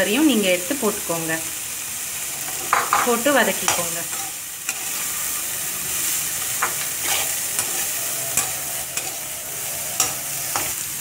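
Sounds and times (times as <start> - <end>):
vegetables sizzling in hot oil: 0.0 - 11.0
metal spatula scraping pan: 3.7 - 11.0.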